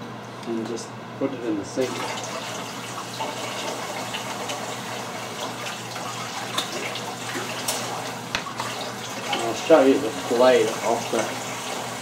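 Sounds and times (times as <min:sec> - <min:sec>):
tap running into sink: 0:06.4 - 0:09.8.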